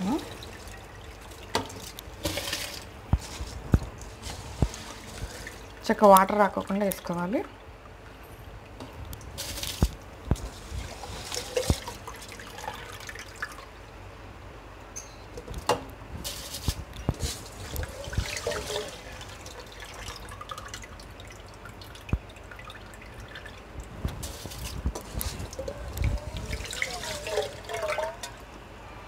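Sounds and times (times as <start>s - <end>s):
wet splashes and drips: 0.0s - 13.7s, 16.2s - 28.4s
water boiling in a pot: 0.0s - 14.5s, 15.3s - 28.8s.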